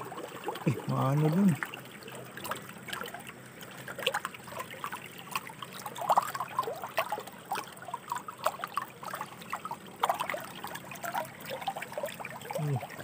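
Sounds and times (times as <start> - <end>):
river water trickling over stones: 0.0 - 13.0
water plops and bubbling: 0.0 - 13.0.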